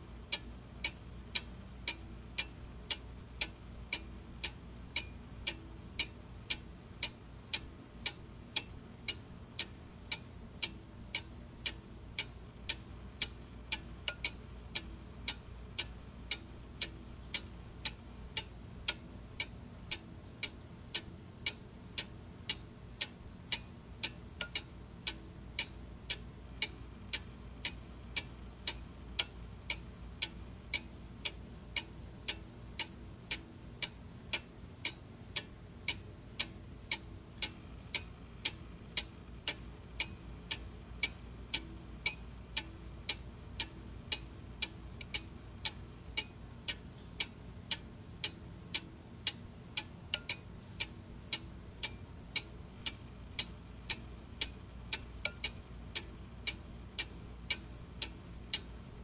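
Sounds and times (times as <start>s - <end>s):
mechanical ticking: 0.0s - 59.0s.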